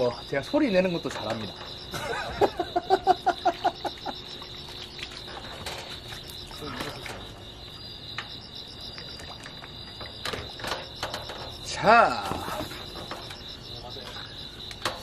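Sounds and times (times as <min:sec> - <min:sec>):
crickets chirping: 0:00.0 - 0:15.0
man laughing: 0:01.9 - 0:04.2.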